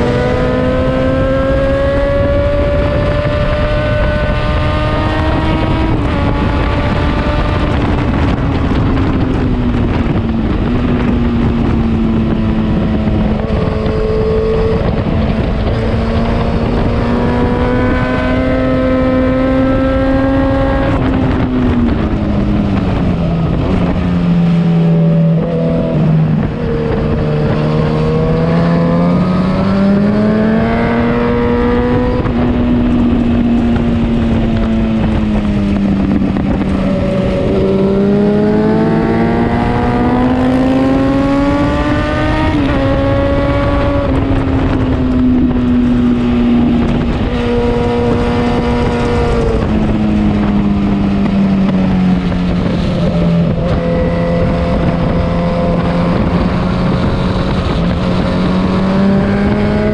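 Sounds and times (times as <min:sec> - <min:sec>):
motorcycle engine revving high: 0:00.0 - 0:59.9.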